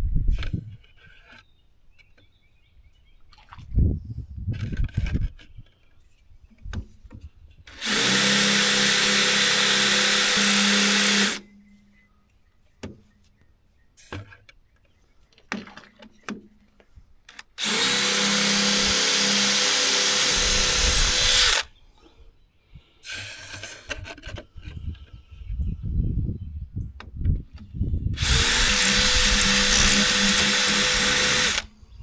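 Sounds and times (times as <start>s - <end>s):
electric drill boring: 7.7s - 11.4s, 17.6s - 21.7s, 28.2s - 31.7s.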